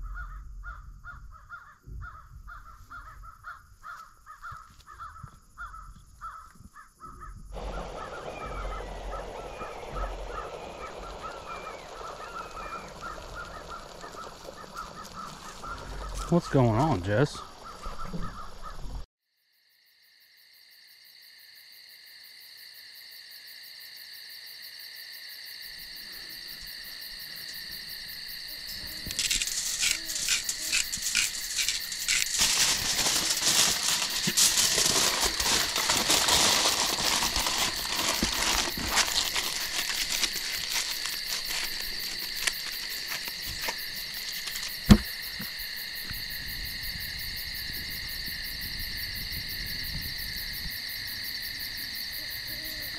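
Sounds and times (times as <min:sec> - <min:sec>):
night insects chirping: 0:00.0 - 0:52.9
aluminium foil crinkling: 0:07.6 - 0:16.4, 0:28.9 - 0:45.0.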